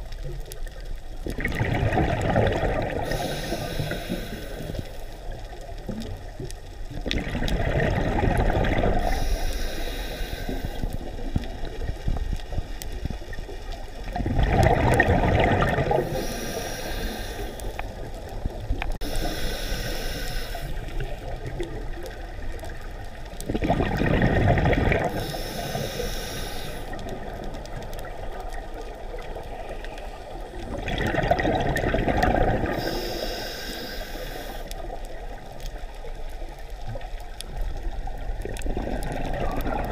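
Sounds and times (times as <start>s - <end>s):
gurgling rush of exhaled bubbles: 1.2s - 4.8s, 6.9s - 9.4s, 14.0s - 19.0s, 20.8s - 25.8s, 30.4s - 33.1s, 37.0s - 39.9s
regulator hiss on inhale: 3.0s - 5.6s, 8.9s - 11.2s, 15.9s - 18.1s, 19.0s - 21.4s, 25.1s - 27.3s, 29.3s - 30.5s, 32.6s - 35.0s.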